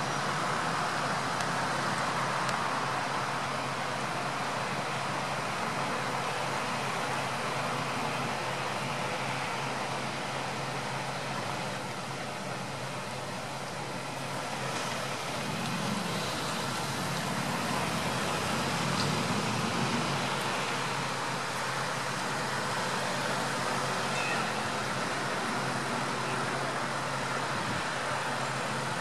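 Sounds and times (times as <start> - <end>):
street traffic noise: 0.0 - 29.0
vehicle engines idling: 0.0 - 29.0.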